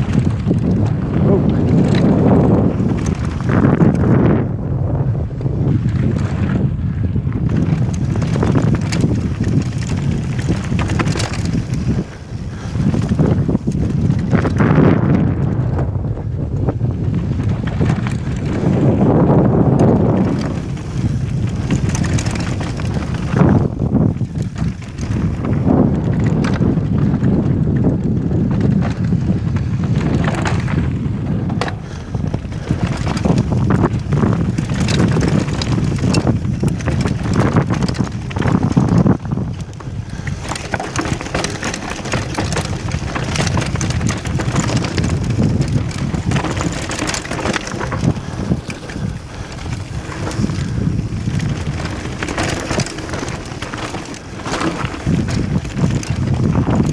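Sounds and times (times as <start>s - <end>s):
bike clattering: 0.0s - 4.4s, 5.4s - 15.7s, 16.8s - 56.9s
wind buffeting microphone: 0.0s - 56.9s
tyres crunching over gravel: 31.4s - 56.9s.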